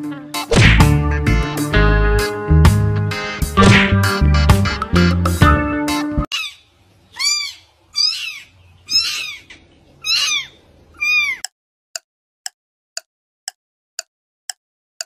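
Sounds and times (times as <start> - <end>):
kitten mewing: 7.2 - 11.4.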